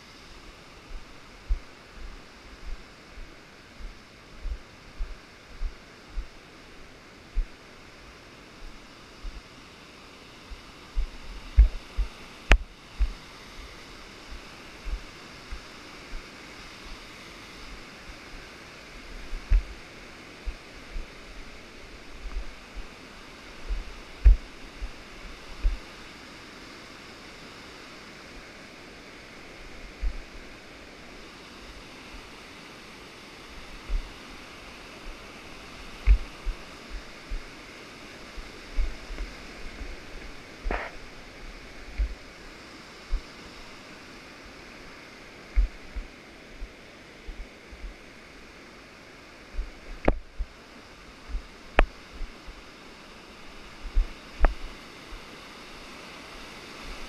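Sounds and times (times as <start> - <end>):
low thumps on camera: 3.8 - 6.3, 11.0 - 13.2, 19.3 - 19.8, 23.7 - 24.5, 36.0 - 37.5, 38.8 - 40.0, 40.6 - 41.0, 41.9 - 42.2, 45.5 - 46.1, 49.6 - 50.6.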